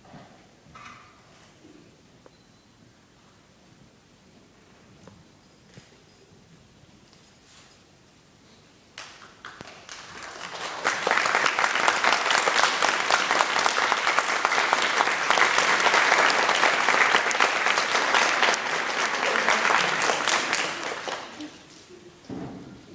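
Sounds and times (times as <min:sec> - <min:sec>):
audience applause: 0:09.4 - 0:22.0.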